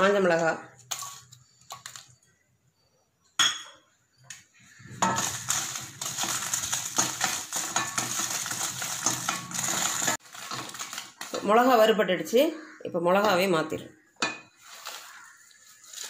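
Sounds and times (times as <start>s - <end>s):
chillies rattling and scraping in pan: 0.0s - 2.2s, 4.6s - 13.5s, 14.2s - 16.0s.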